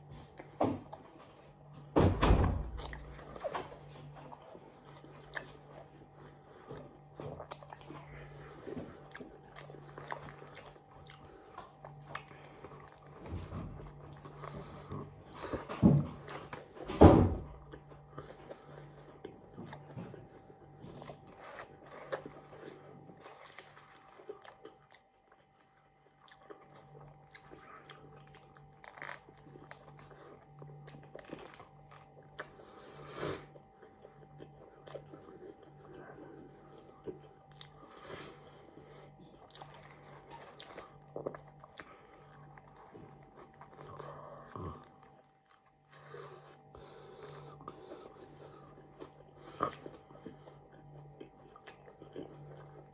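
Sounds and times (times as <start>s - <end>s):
biting and chewing: 0.0s - 52.9s.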